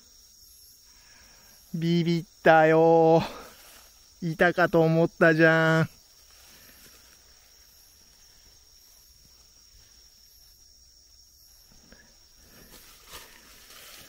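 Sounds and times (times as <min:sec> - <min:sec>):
night insects trilling: 0:00.0 - 0:14.0
footsteps in leaf litter: 0:12.5 - 0:14.0.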